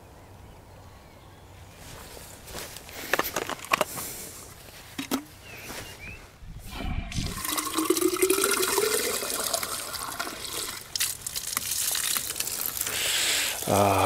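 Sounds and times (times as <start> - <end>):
tap water filling bottle: 7.2 - 12.9.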